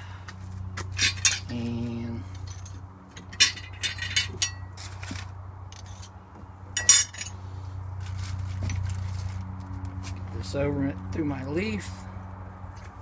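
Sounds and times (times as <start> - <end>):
metal and glass pieces clinking: 1.0 - 1.6, 2.3 - 4.7, 5.7 - 6.2, 6.8 - 7.4.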